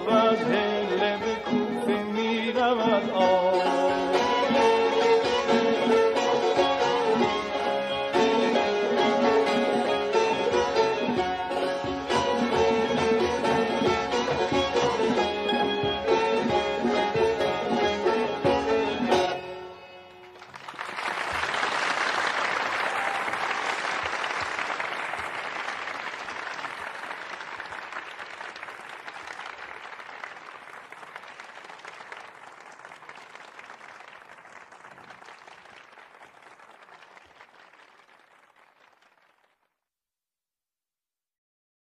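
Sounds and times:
traditional music ensemble: 0.0 - 20.2
audience applause: 20.1 - 39.8.

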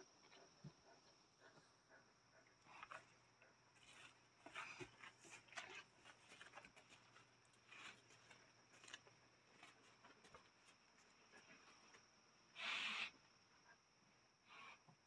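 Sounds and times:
dogs rustling on pads: 3.8 - 10.7.

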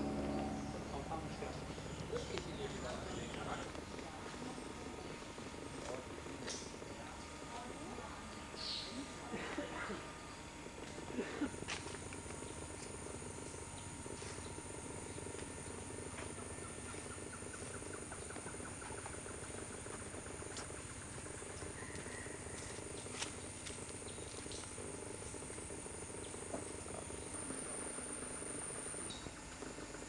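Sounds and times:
high insect drone: 0.0 - 30.0
insects and frogs calling: 0.0 - 30.0
rapid ticking calls: 12.4 - 30.0.

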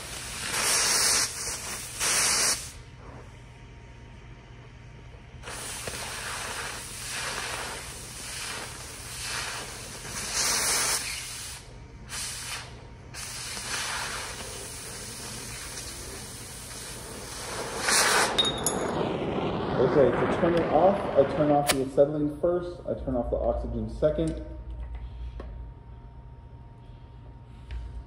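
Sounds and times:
cutting torch hissing: 0.0 - 3.2, 5.4 - 19.0.

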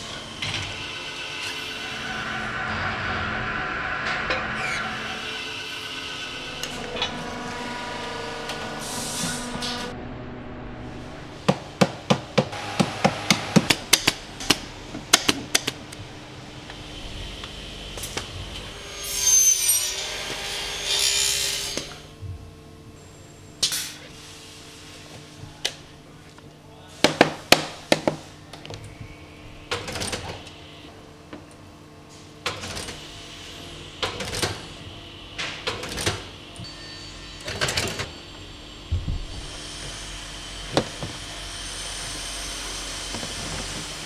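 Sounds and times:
loud tool noise: 0.0 - 11.8, 12.4 - 14.8, 16.7 - 22.1, 32.6 - 44.0
steady hum: 0.0 - 44.0.

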